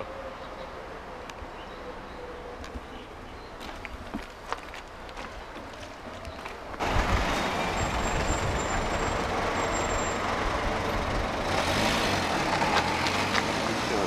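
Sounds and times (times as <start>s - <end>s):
heavy vehicle engine rumbling: 0.0s - 14.0s
street traffic: 0.0s - 14.0s.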